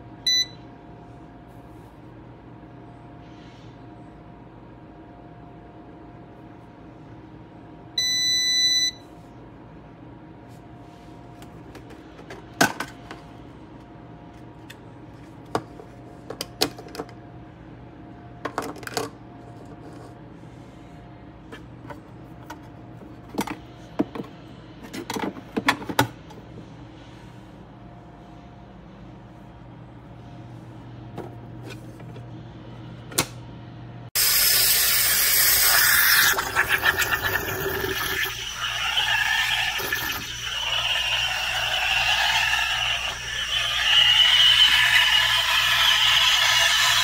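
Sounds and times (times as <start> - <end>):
espresso machine beep: 0.2 - 0.7, 8.0 - 9.1, 37.4 - 47.0.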